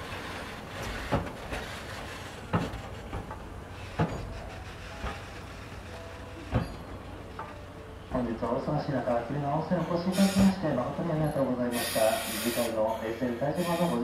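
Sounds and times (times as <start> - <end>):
train wheels knocking over rail joints: 0.0 - 7.7.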